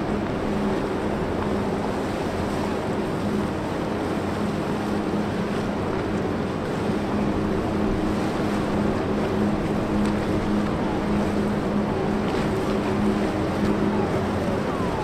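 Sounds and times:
diesel engine drone: 0:00.0 - 0:15.0
water wash: 0:00.0 - 0:15.0.

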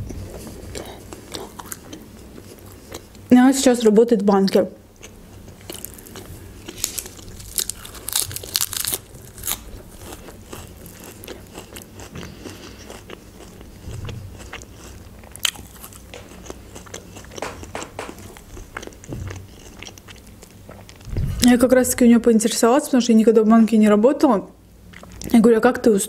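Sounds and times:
chewing crunchy bread: 0:00.0 - 0:03.2, 0:04.5 - 0:21.2, 0:24.9 - 0:25.4.

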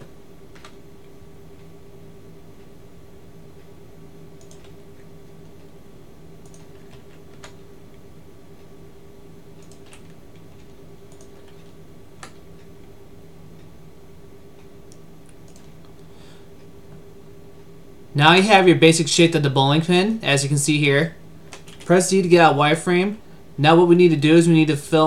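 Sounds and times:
keyboard and mouse clicks: 0:00.0 - 0:00.8, 0:04.4 - 0:04.8, 0:06.4 - 0:07.6, 0:09.6 - 0:12.7, 0:14.6 - 0:16.0, 0:21.5 - 0:22.0
steady low hum: 0:00.0 - 0:25.0.

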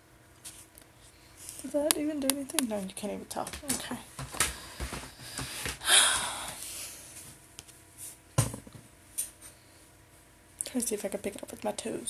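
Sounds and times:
rustling and handling noise: 0:00.3 - 0:05.8.

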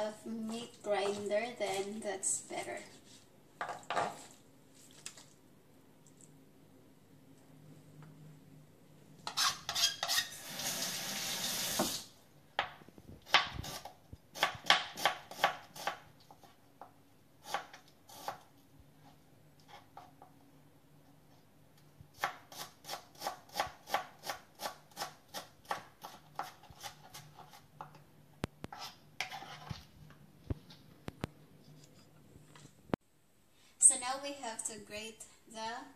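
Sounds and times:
knife chopping on plastic board: 0:12.6 - 0:16.0, 0:22.2 - 0:28.0.

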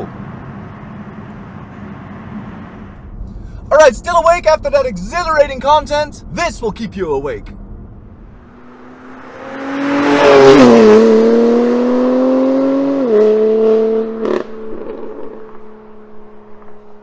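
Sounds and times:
exhaust crack: 0:00.0 - 0:17.0
car engine accelerating past: 0:07.6 - 0:17.0.

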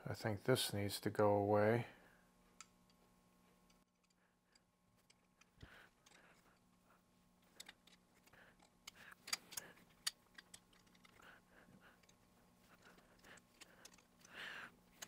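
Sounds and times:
small metal parts clicking: 0:03.7 - 0:06.7, 0:07.4 - 0:15.0.

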